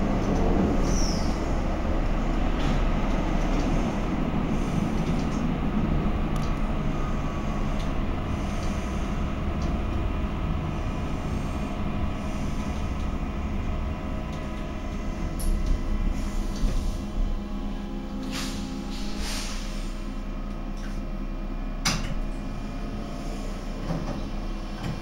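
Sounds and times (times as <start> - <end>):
drive motor hum: 0.0 - 18.2
wheels rumbling on rail: 0.0 - 25.0.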